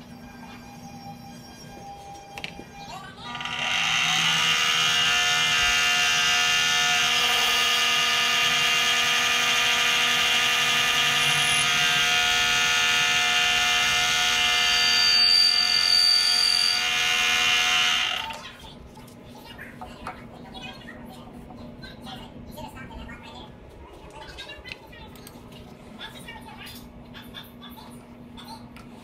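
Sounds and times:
lathe motor whining: 0.0 - 18.4
high-pitched squeal: 3.3 - 18.4.

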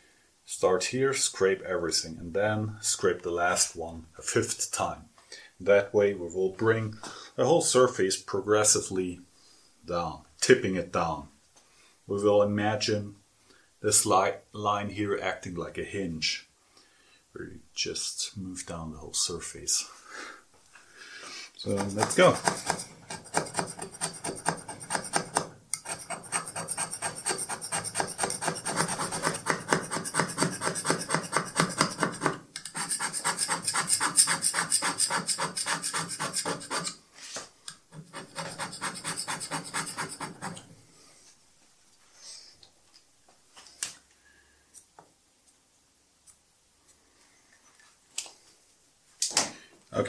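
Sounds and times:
hand scraper scraping metal: 21.6 - 40.7.

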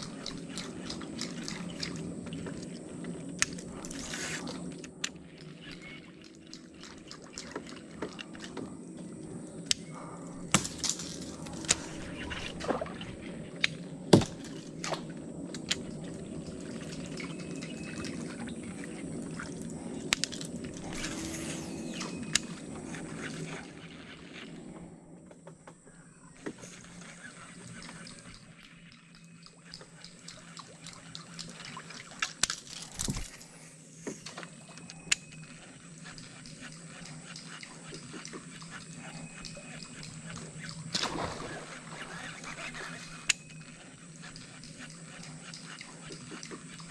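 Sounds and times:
water dripping and lapping: 0.0 - 25.3, 26.3 - 46.9
low steady hum: 0.0 - 46.9.

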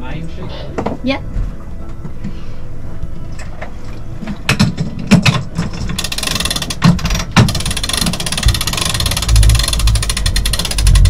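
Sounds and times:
winch clunks: 4.6 - 11.0
winch pawls clicking: 6.0 - 11.0.

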